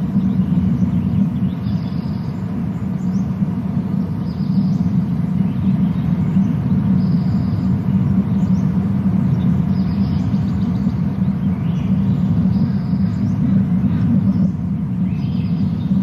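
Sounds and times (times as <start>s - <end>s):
steady low rumble: 0.0s - 16.0s
faint high bird chirps: 4.0s - 16.0s.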